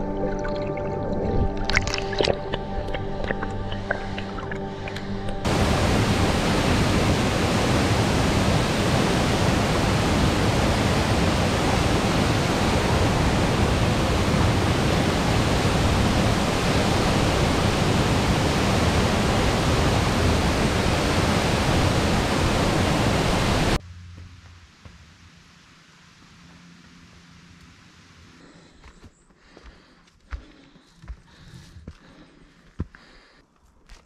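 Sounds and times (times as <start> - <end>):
waterfall roar: 5.4 - 23.8.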